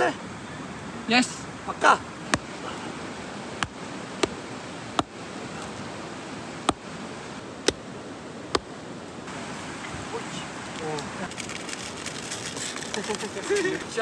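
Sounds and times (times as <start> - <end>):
campfire crackling and popping: 2.2 - 9.2.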